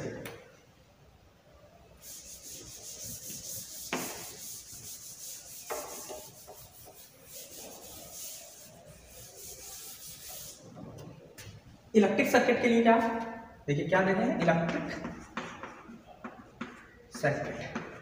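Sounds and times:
chalkboard wiped with duster: 2.0s - 10.7s.

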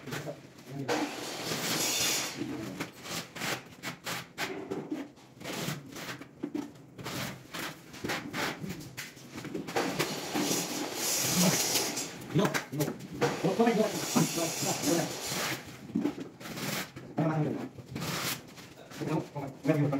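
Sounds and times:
tiles scraping and rubbing: 2.6s - 12.2s, 14.0s - 19.9s.

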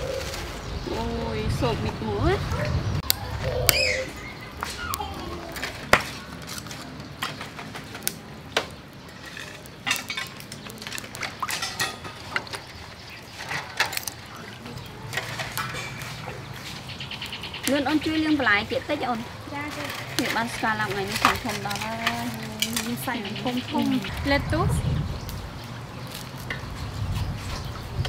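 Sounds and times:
shells and steel bowls clinking: 9.2s - 12.5s.

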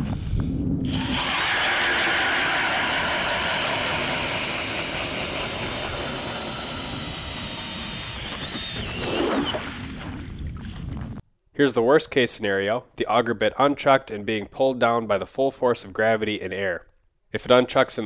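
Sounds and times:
drill motor whine: 0.8s - 9.7s
auger grinding through ice: 0.8s - 9.9s.

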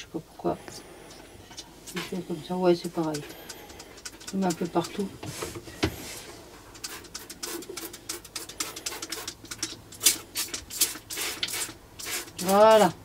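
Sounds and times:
gel squirting from plastic bottle: 6.8s - 12.5s.

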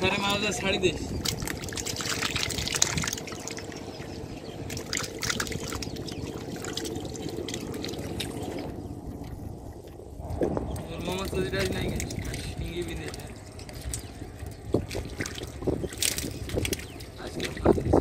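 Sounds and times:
hands splashing in muddy water: 1.2s - 3.6s, 4.6s - 8.5s, 14.8s - 17.7s.

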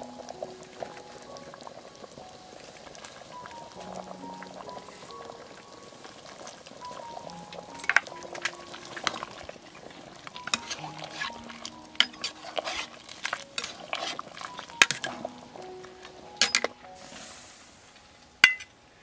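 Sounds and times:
simmering broth bubbling: 0.0s - 19.0s
metal ladle clinking against pot: 7.8s - 9.5s, 10.4s - 15.3s, 16.4s - 16.7s, 18.4s - 18.7s.

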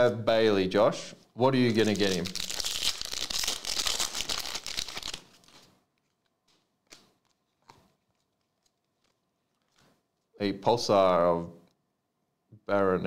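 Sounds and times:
foil wrapper crinkling: 1.7s - 10.0s
soft clicks of cards handled: 5.5s - 10.0s.

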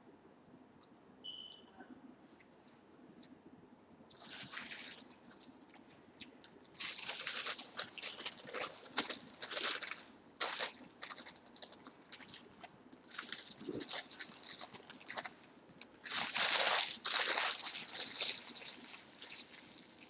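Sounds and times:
paper wrapper crinkling: 4.1s - 20.0s.

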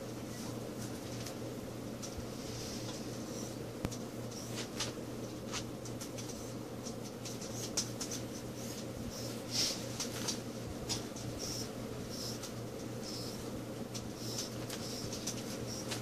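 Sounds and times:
steady low hum: 0.0s - 16.0s
animals scratching and rustling: 4.2s - 16.0s.

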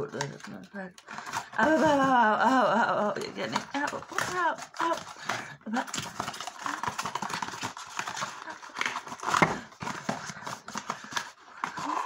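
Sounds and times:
cardboard box rustling and clicks: 3.2s - 12.0s.

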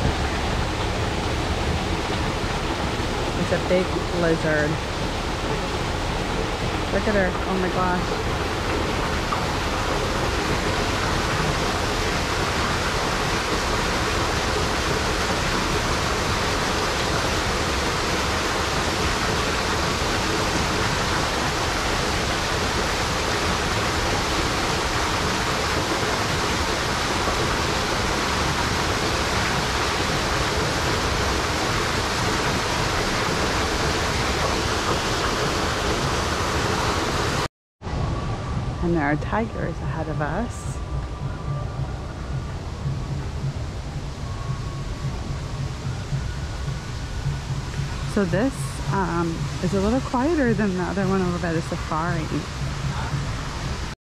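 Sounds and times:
falling water rushing: 0.0s - 54.0s.

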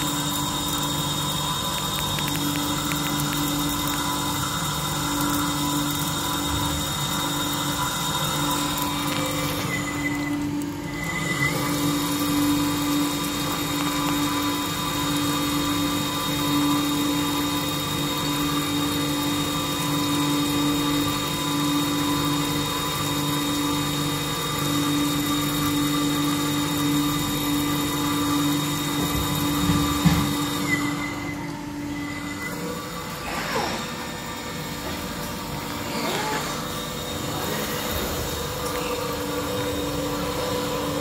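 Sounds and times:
machine humming: 0.0s - 41.0s.

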